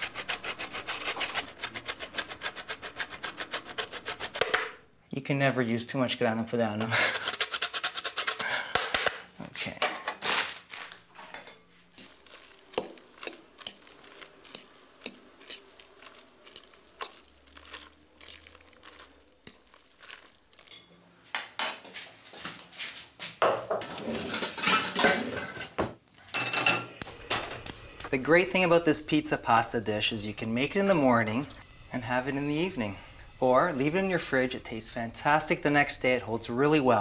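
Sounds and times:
fork clinking against glass bowl: 11.2s - 21.0s.

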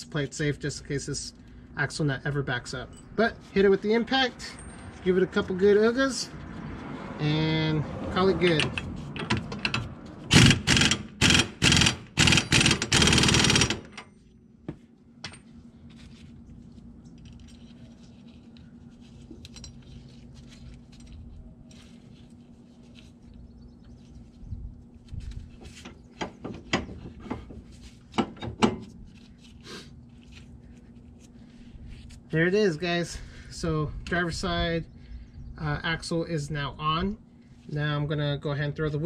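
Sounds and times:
impact wrench hammering: 8.6s - 14.0s.

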